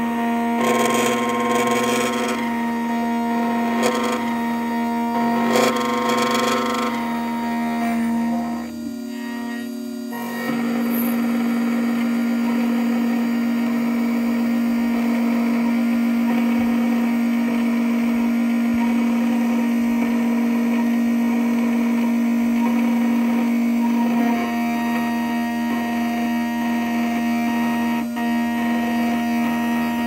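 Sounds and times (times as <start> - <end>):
cutter grinding brass key: 0.0 - 30.0
key-cutting machine motor whine: 0.0 - 30.0.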